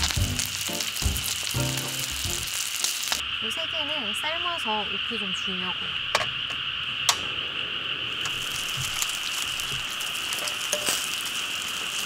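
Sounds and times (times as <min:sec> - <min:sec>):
water boiling in pot: 0:00.0 - 0:05.7, 0:06.4 - 0:12.0
night insects chorus: 0:00.6 - 0:12.0
metal pot clinking: 0:10.4 - 0:11.1.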